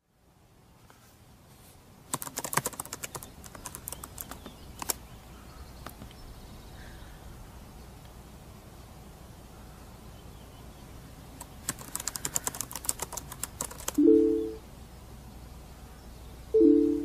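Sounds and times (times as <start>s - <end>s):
faint low hum: 0.0s - 17.0s
sharp clicks: 2.1s - 5.0s, 11.4s - 14.0s.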